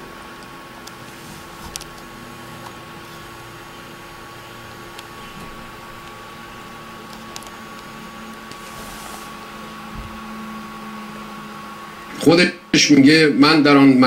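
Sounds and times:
electrical hum and hiss: 0:00.0 - 0:14.0
soft low thump: 0:09.9 - 0:10.2.

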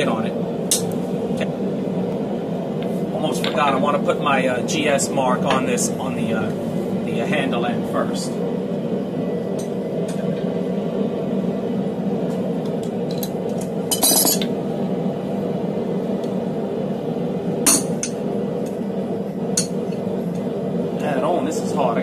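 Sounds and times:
steady hum: 0:00.0 - 0:22.0.

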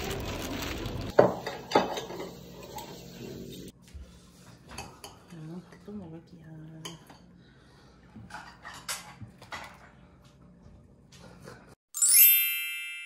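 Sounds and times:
tableware clinking on plate: 0:01.2 - 0:02.9.

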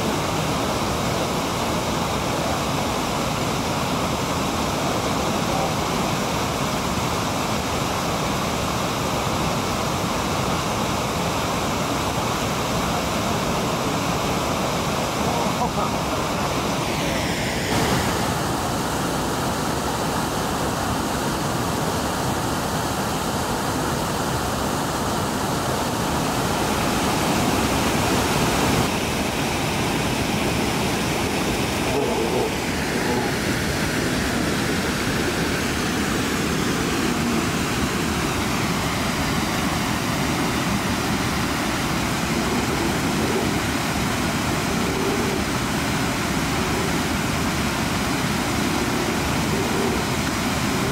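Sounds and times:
water rushing over falls: 0:00.0 - 0:50.9.

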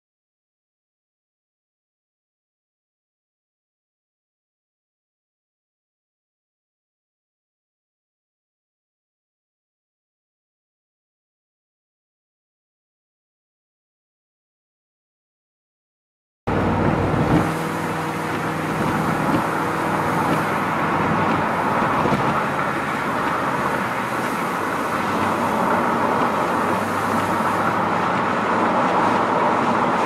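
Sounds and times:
car road noise: 0:16.5 - 0:30.0
faint engine hum: 0:16.5 - 0:30.0.

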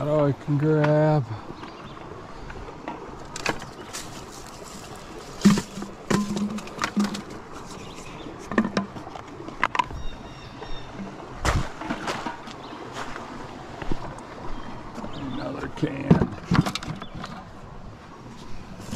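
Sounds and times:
footsteps on rocks: 0:03.3 - 0:08.2.

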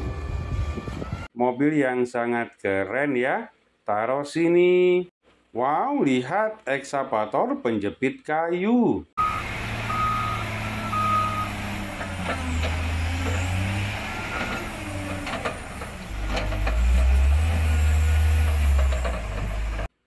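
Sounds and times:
reversing alarm beeps: 0:09.2 - 0:11.6
diesel engine rumbling: 0:09.2 - 0:20.0.

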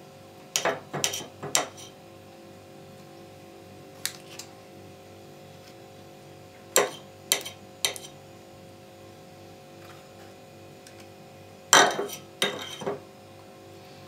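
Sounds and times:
kitchenware clinking: 0:00.6 - 0:01.9, 0:06.8 - 0:08.2, 0:11.8 - 0:13.0.

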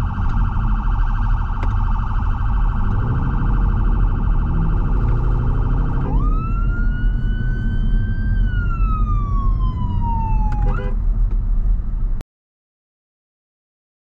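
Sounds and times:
electronic siren yelp and wail: 0:00.0 - 0:11.0
car engine rumble: 0:00.0 - 0:12.2
road noise in cabin: 0:00.0 - 0:12.2.

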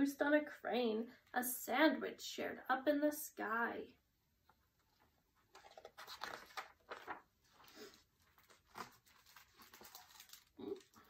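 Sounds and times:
book pages rustling: 0:04.8 - 0:10.6.

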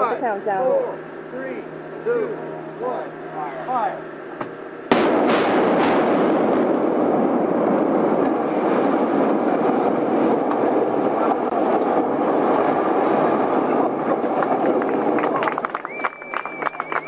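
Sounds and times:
demolition blast: 0:04.9 - 0:15.1
bridge collapsing rumbling roar: 0:04.9 - 0:16.0.

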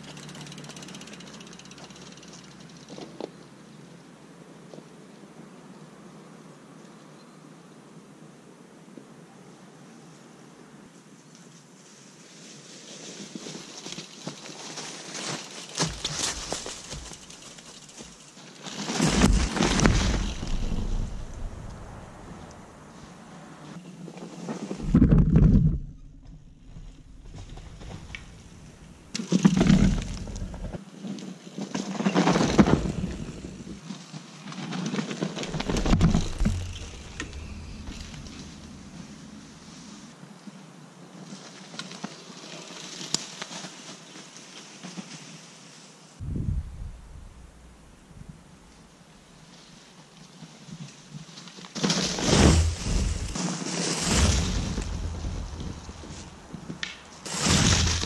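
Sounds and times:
bike tyres crunching dry leaves: 0:00.0 - 0:03.2, 0:12.3 - 0:23.1, 0:26.7 - 0:40.1, 0:41.2 - 0:46.2, 0:49.3 - 0:58.0.

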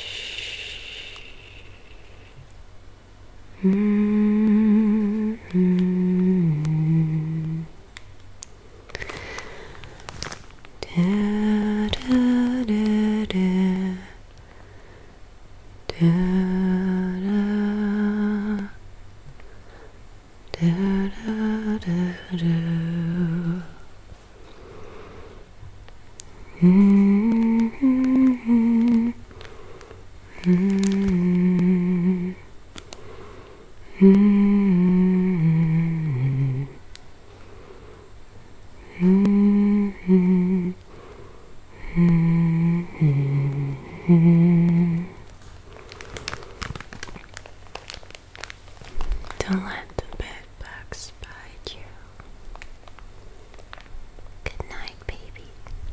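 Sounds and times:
woman humming softly: 0:00.0 - 0:02.4, 0:03.5 - 0:07.8, 0:10.8 - 0:14.3, 0:15.8 - 0:18.8, 0:20.5 - 0:23.9, 0:26.4 - 0:29.3, 0:30.3 - 0:32.5, 0:33.8 - 0:36.9, 0:38.8 - 0:40.9, 0:41.7 - 0:45.3.

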